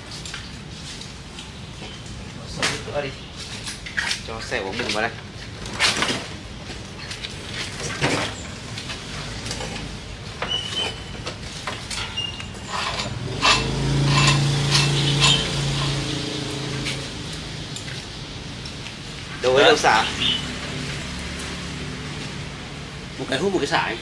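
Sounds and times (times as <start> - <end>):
engine humming: 8.3 - 23.2.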